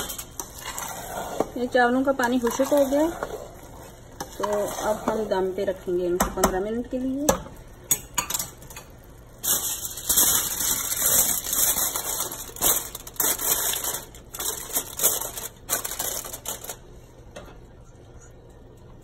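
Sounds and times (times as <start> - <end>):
aluminium foil crinkling: 1.6 - 5.9, 8.5 - 16.8.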